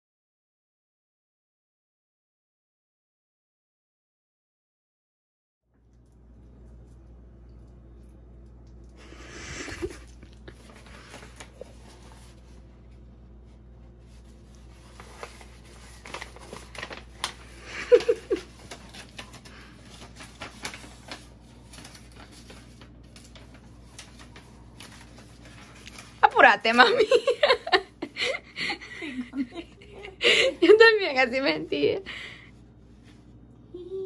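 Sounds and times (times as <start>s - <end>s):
paper rustling and crinkling: 9.5s - 27.8s.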